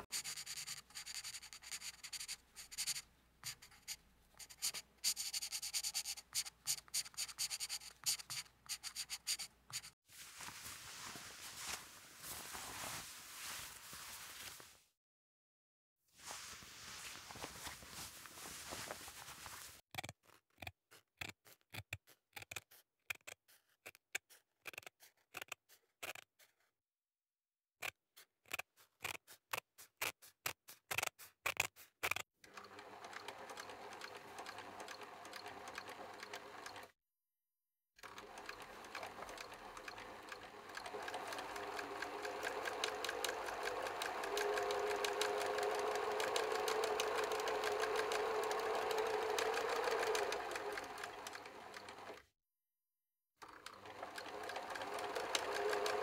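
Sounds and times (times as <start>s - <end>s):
pen strokes on paper: 0.0s - 14.7s
small machine ticking and humming: 0.1s - 10.0s, 32.5s - 36.9s, 38.0s - 52.2s, 53.4s - 56.0s.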